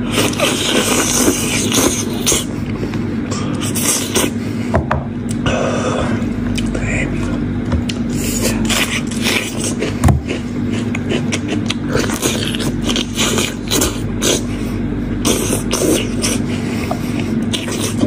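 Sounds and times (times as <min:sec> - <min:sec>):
steady low hum: 0:00.0 - 0:18.0
wet chewing and lip-smacking: 0:07.8 - 0:14.5, 0:15.2 - 0:18.0.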